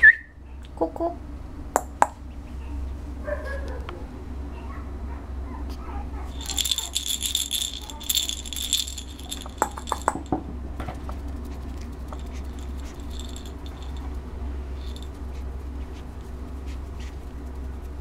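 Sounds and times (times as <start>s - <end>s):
steady low hum: 0.0s - 18.0s
toy rattle jingling: 6.3s - 10.4s, 11.4s - 15.4s.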